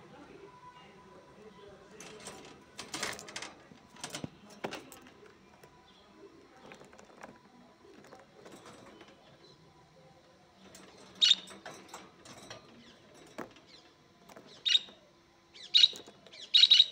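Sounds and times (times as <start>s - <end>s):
budgerigar chirps: 15.6s - 16.9s.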